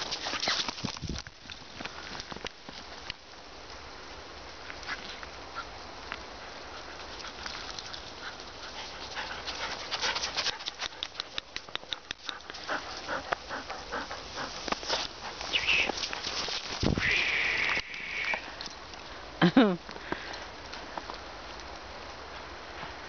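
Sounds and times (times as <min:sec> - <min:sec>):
dog panting: 0:06.3 - 0:16.6.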